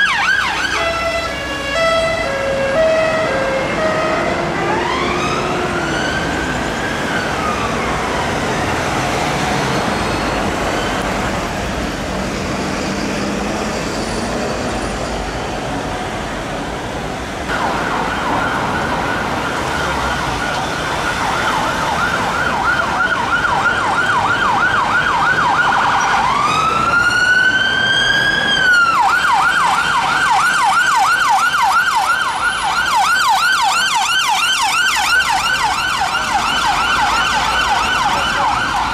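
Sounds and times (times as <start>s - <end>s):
emergency vehicle siren: 0.0s - 38.9s
road traffic: 0.0s - 38.9s.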